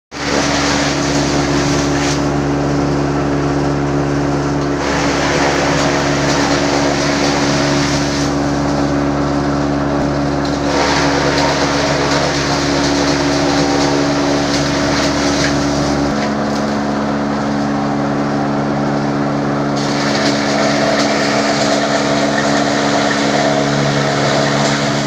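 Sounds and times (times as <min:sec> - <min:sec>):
electric motor hum: 0:00.2 - 0:25.0
forage chopper chopping grass: 0:10.4 - 0:16.9, 0:19.8 - 0:25.0.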